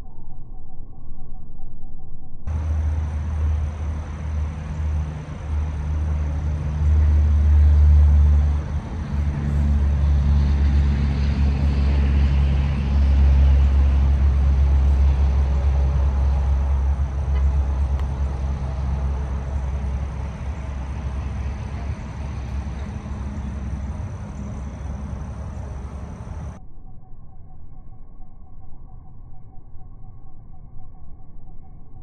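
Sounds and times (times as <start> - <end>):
road traffic rumble: 2.5 - 26.6
vehicle passing by: 2.5 - 26.6.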